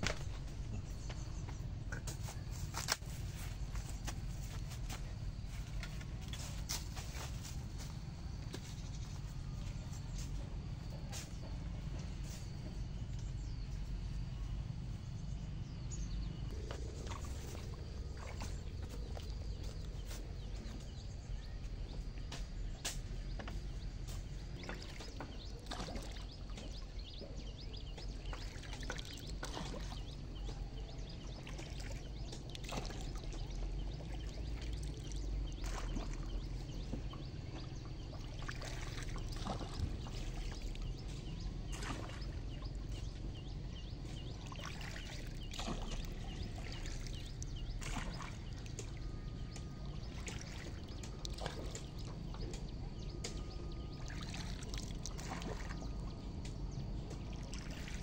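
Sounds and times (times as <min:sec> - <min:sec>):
pole splashing in water: 0:16.6 - 0:21.2, 0:22.5 - 0:58.0.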